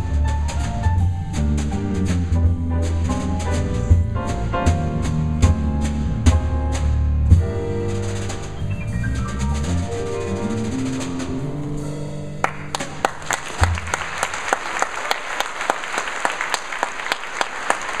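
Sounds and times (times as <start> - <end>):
jazz trio playing: 0.0 - 14.0
audience applause: 12.4 - 18.0.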